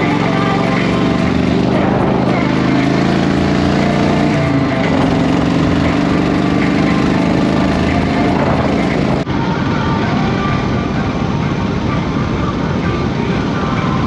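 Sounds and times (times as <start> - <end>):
motorcycle engine running: 0.0 - 9.3.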